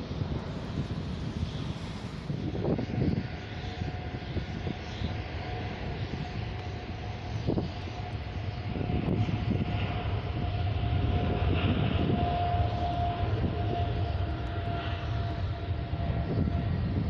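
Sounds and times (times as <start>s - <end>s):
jet engines rumbling and whining: 0.0s - 17.0s.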